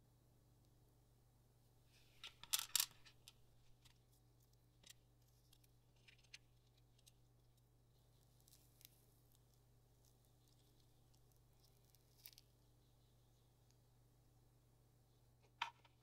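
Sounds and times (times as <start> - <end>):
faint low hum: 0.0 - 16.0
resin pieces clicking on tabletop: 2.2 - 3.9.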